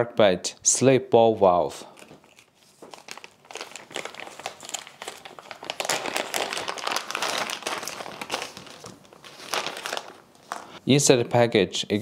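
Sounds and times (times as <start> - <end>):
plastic bag crinkling: 1.9 - 10.8.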